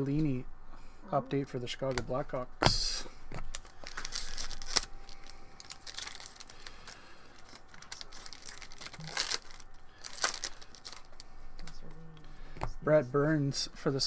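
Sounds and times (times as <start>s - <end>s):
foil wrapper crinkling: 3.4s - 11.9s.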